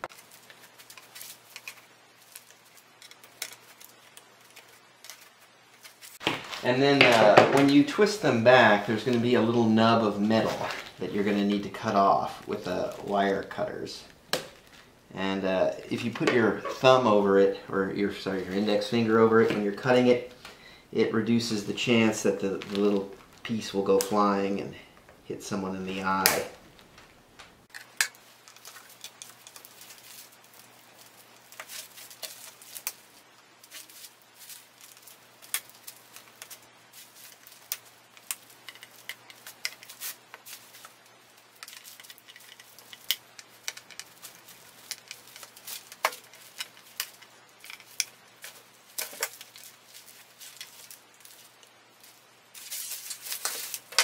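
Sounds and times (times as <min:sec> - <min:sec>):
tools and board handling: 0:00.0 - 0:09.3, 0:27.7 - 0:54.0.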